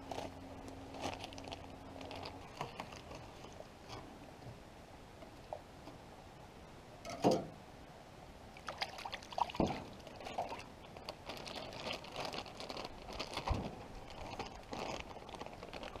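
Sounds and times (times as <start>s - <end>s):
plastic bag crinkling: 0.0s - 3.7s, 9.6s - 16.0s.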